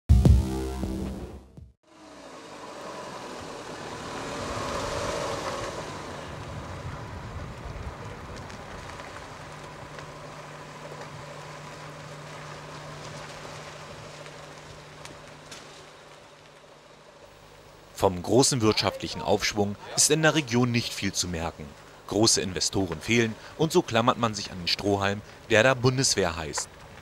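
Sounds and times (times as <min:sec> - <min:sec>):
car driving on snowy road: 0:01.8 - 0:18.7.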